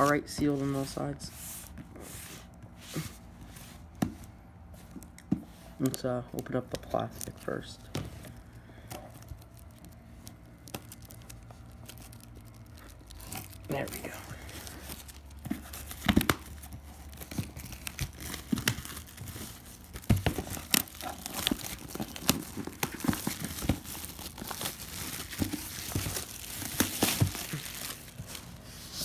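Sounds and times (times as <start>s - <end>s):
plastic shrink-wrap crinkling: 5.8s - 28.8s.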